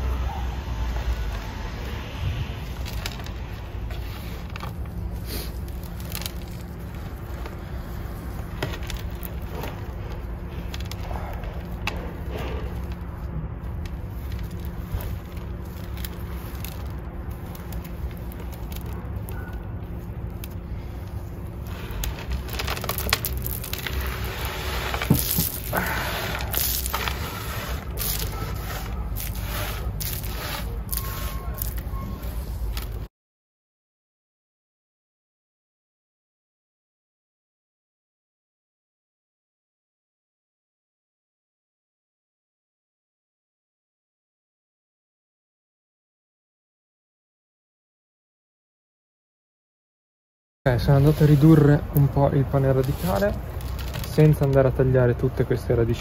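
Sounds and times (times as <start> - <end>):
steady low rumble: 0.0 - 33.1
soil crumbling and crackling: 2.5 - 33.1, 50.7 - 56.0
soil brushed across tabletop: 20.4 - 33.0, 50.7 - 51.8, 52.6 - 54.1.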